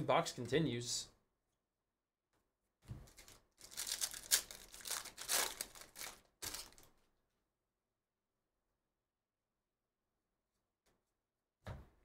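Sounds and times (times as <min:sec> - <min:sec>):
foil wrapper crinkling and tearing: 0:03.1 - 0:06.9.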